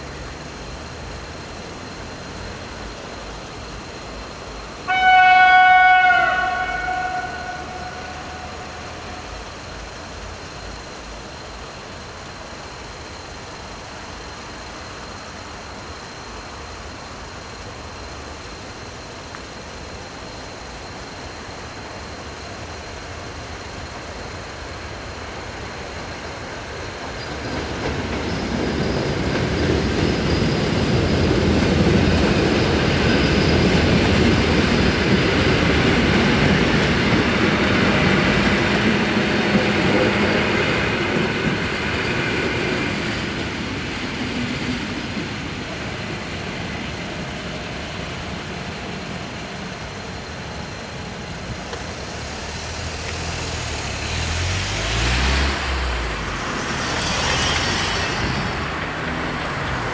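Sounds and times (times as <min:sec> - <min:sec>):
train passing on track: 0:00.0 - 0:59.9
car driving over crossing: 0:52.2 - 0:59.9.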